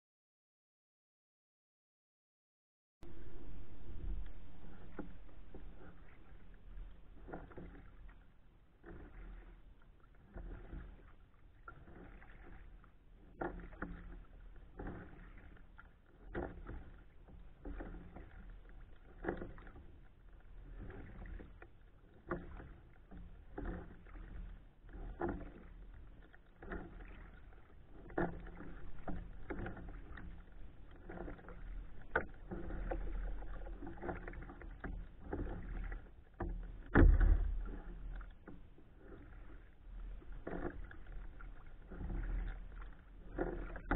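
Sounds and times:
low thump: 3.0s - 6.1s
kayak paddle splashing: 3.0s - 43.9s.

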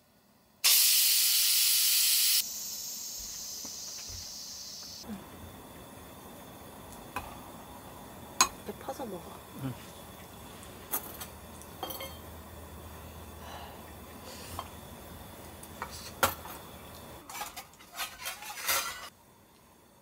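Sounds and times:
dishes and cutlery clinking: 11.0s - 12.3s, 17.2s - 19.1s.

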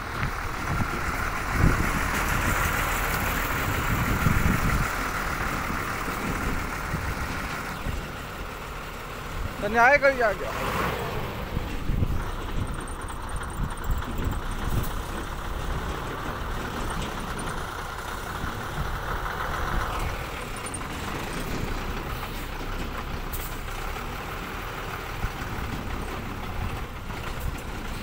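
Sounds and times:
diesel engine idling: 0.0s - 28.0s.

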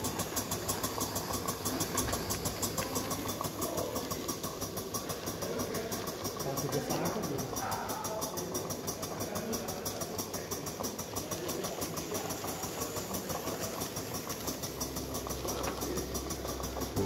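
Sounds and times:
model steam engine running: 0.0s - 17.0s.

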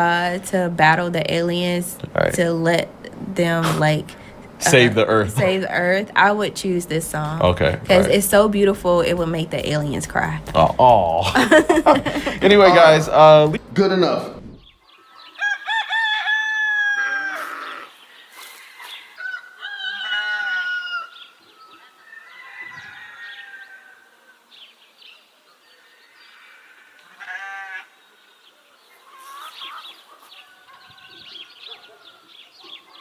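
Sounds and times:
rooster crowing: 15.1s - 17.9s, 18.6s - 24.4s, 26.1s - 28.0s.

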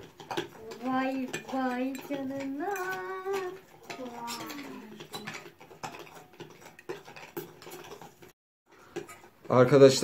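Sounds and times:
spoons scraping glass bowls: 0.0s - 10.0s
child's wordless vocal sound: 0.7s - 5.2s.

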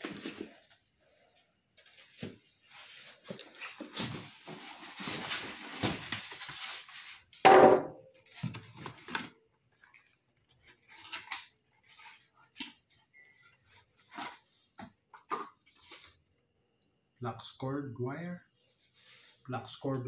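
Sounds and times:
packing material rustling: 2.6s - 7.4s.

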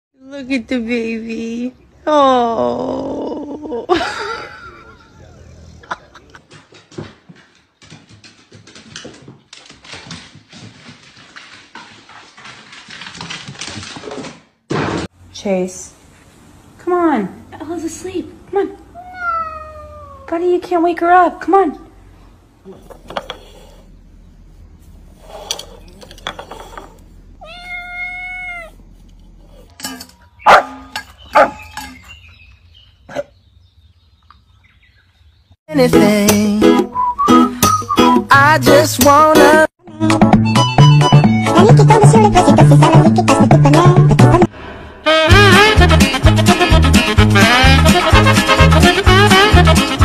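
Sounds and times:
small animal feet clattering: 6.4s - 14.5s
kitten meowing: 19.0s - 20.3s, 27.4s - 28.8s.

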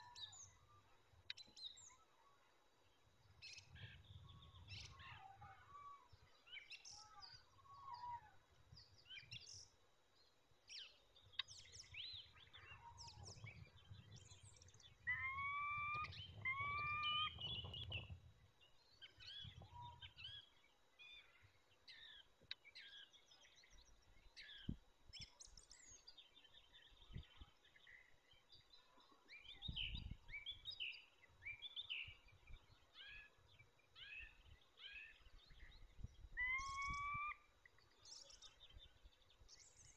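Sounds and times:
songbirds chirping and singing: 0.0s - 39.9s
rising and falling bird calls: 12.4s - 18.1s, 36.4s - 37.4s.

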